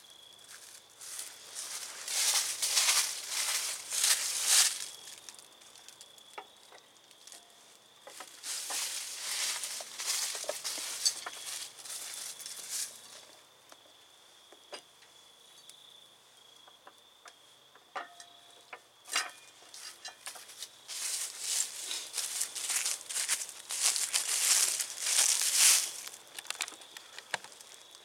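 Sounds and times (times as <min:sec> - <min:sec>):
footsteps crunching dry leaves: 0:00.4 - 0:06.0, 0:08.2 - 0:13.2, 0:20.3 - 0:28.0.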